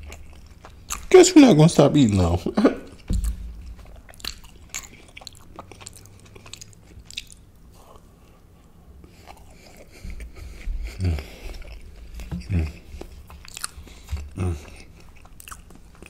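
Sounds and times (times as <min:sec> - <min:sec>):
biting and chewing: 0:00.0 - 0:01.3, 0:02.9 - 0:08.4, 0:09.0 - 0:16.0
wet mouth clicks: 0:03.2 - 0:07.4.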